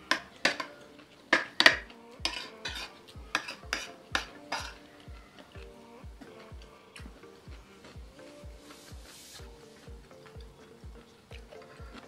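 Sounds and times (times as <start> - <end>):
background music with beat: 0.0 - 12.0
spoon clinking on plate: 0.1 - 4.9.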